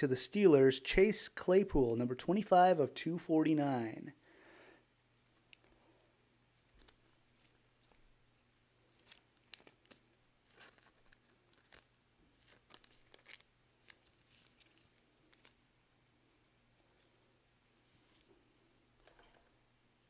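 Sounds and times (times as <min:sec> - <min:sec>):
faint steady hum: 0:00.0 - 0:20.0
card handling rustles and clicks: 0:06.6 - 0:08.1, 0:08.9 - 0:15.6.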